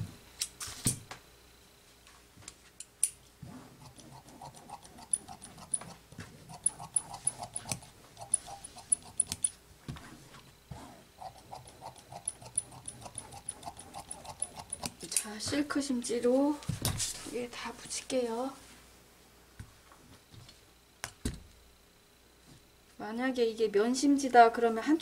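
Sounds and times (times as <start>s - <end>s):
shears snipping fabric: 3.5s - 9.5s, 11.2s - 15.3s.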